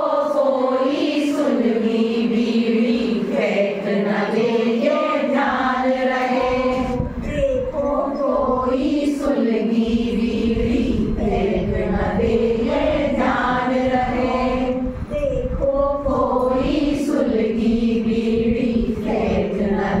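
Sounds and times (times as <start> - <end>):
women singing in unison: 0.0 - 20.0.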